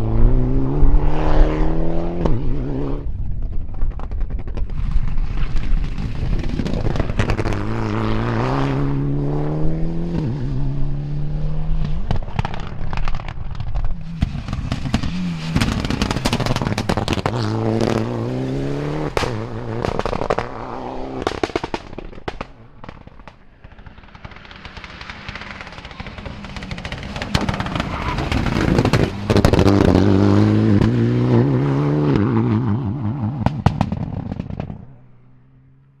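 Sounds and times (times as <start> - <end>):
rally car engine accelerating: 0.0 - 3.2, 5.6 - 22.2, 24.9 - 35.0
exhaust crackles and pops: 3.0 - 9.1, 11.6 - 31.0, 32.1 - 35.1.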